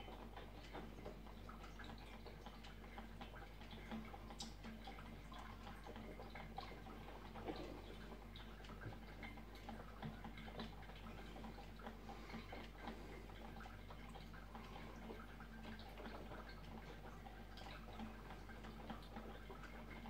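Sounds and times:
coffee maker ticking and dripping: 0.0s - 20.0s
low steady hum: 0.0s - 20.0s.

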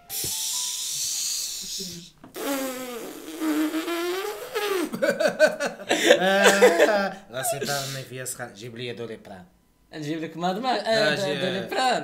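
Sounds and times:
high hissing buzz: 0.0s - 5.1s, 7.4s - 8.2s
man laughing: 4.9s - 8.0s.

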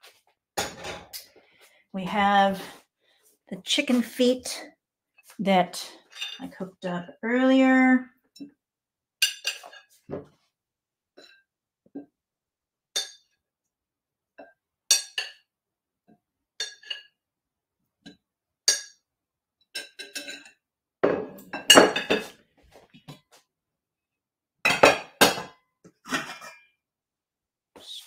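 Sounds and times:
utensils clinking against dishes: 19.8s - 20.6s.

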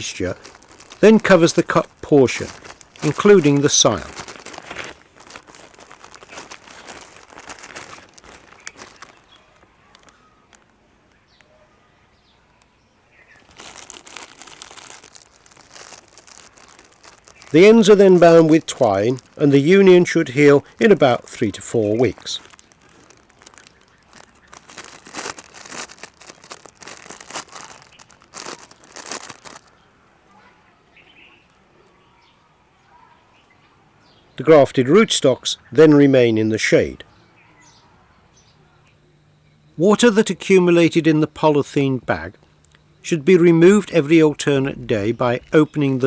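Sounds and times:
plastic bag crinkling: 0.0s - 10.8s, 13.3s - 29.8s.

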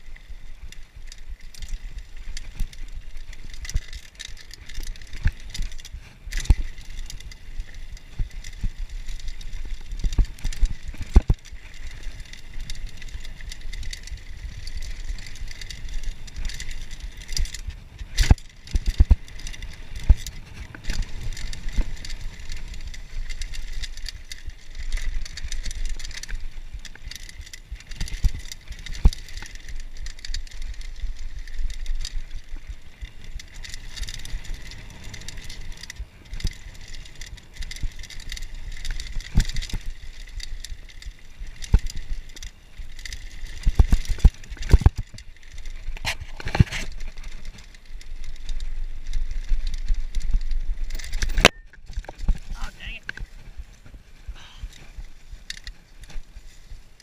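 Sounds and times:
bike knocking and rattling: 0.0s - 57.0s
wind and tyres on dirt: 0.0s - 57.0s.

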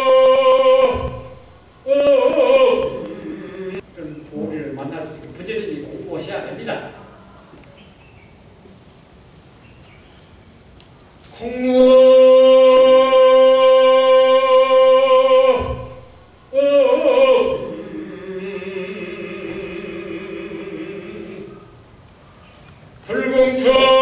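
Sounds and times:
monk chanting: 0.0s - 4.8s, 11.4s - 21.7s, 23.1s - 24.0s.

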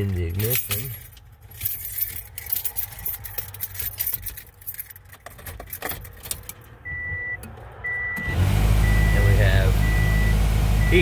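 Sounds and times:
key turning in ignition: 0.0s - 6.7s
car keys jangling: 0.0s - 6.8s
car warning chime beep: 6.8s - 11.0s.

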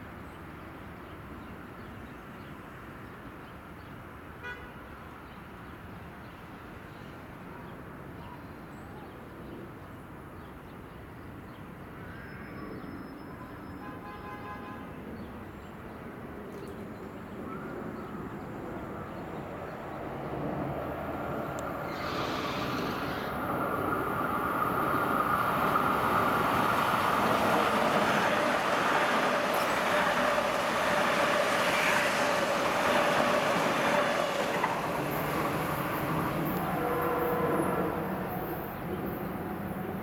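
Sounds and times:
train passing: 17.8s - 40.0s
high whine from train: 18.1s - 40.0s
rail rumble: 18.8s - 40.0s.

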